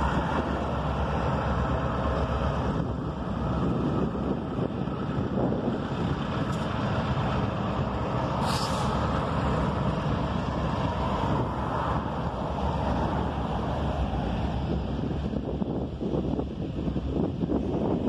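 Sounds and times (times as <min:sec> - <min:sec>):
freight train rumbling past: 0:00.0 - 0:18.0
highway traffic: 0:00.0 - 0:18.0
wind buffeting microphone: 0:00.0 - 0:18.0
brief sharp hiss: 0:08.4 - 0:09.0.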